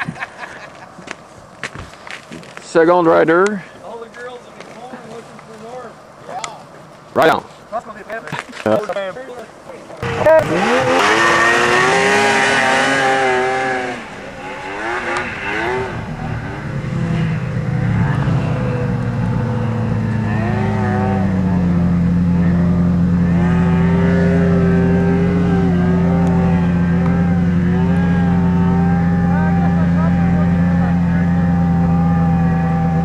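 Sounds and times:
snowmobile engines revving: 10.0 - 33.0.

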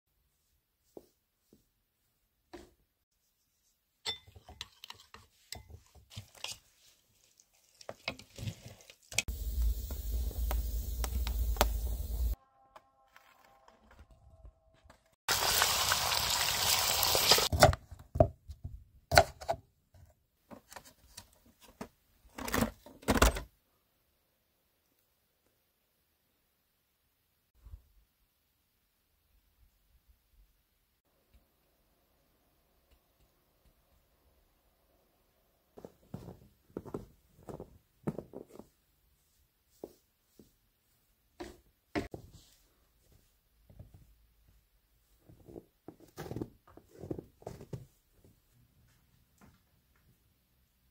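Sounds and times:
potato sticks sizzling in oil: 7.0 - 12.4, 15.3 - 17.5.

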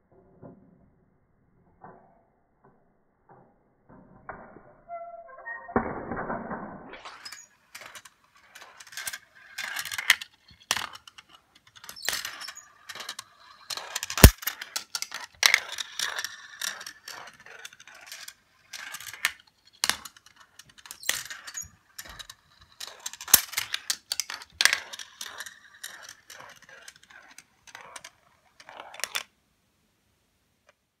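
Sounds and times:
marbles rolling and clattering: 6.9 - 29.3.

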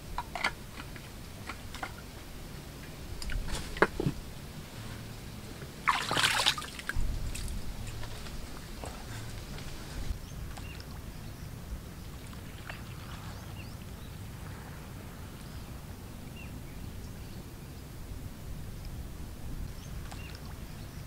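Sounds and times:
steady low rumble: 6.8 - 12.2
small birds chirping: 6.9 - 14.2, 19.7 - 21.0.

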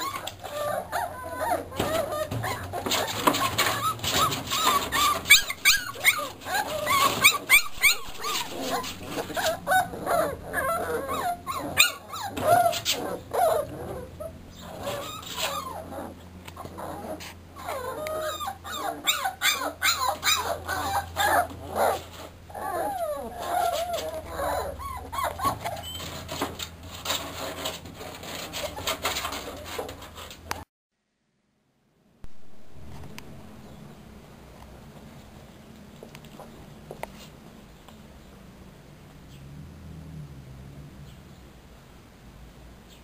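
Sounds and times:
puppies whining: 0.0 - 29.9.

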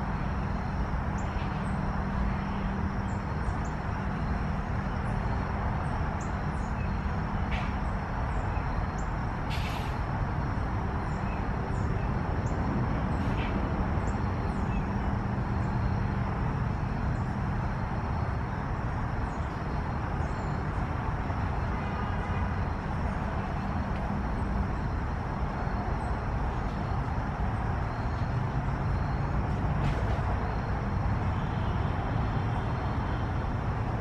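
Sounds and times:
brief hiss: 9.5 - 10.0.

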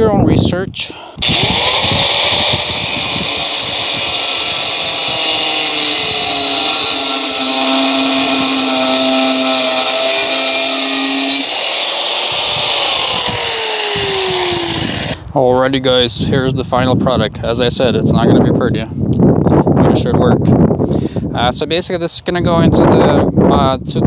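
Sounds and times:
angle grinder cutting steel: 1.2 - 15.2
grinder motor spinning down: 1.2 - 15.2.

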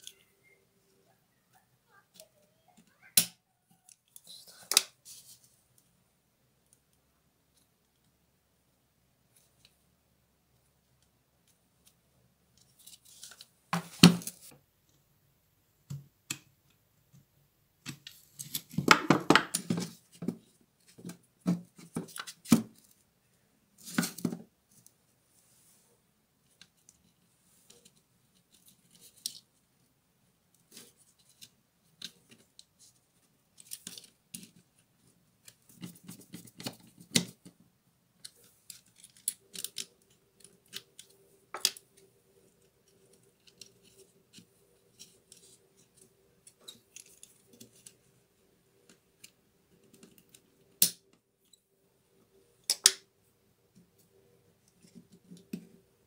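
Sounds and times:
hands rustling wiring: 17.8 - 29.8, 30.4 - 53.0.

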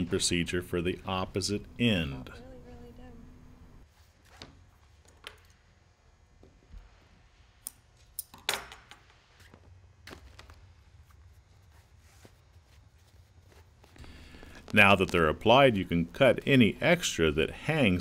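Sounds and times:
vinyl crinkling: 9.4 - 16.4.

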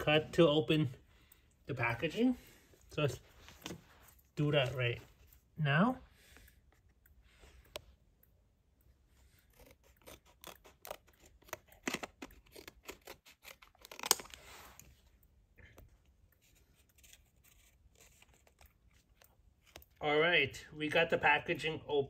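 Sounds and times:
scissors cutting blister pack: 9.3 - 14.5.

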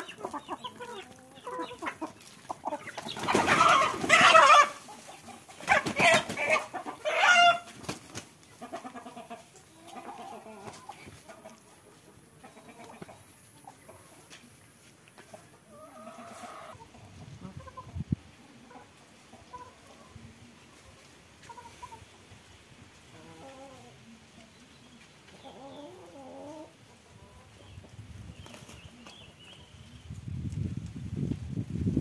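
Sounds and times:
chickens clucking: 0.0 - 30.6
wings flapping: 2.9 - 4.7, 5.6 - 6.6, 7.7 - 8.3.

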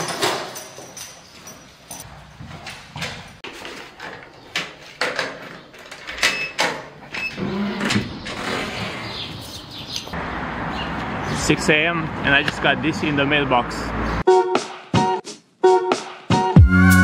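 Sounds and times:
footsteps on tiled floor: 0.0 - 5.0
metal door squeaking: 5.2 - 9.9.

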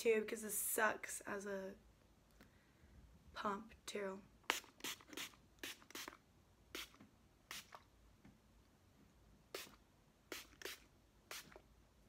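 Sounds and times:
spray bottle spritzes: 4.5 - 7.8, 9.6 - 11.6.

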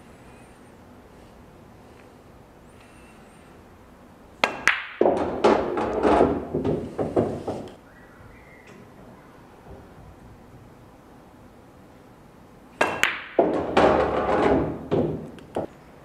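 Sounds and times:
pool cue ball clicks: 4.4 - 6.2, 12.8 - 15.7
ball rolling through return channel: 4.4 - 7.8, 12.8 - 15.7.

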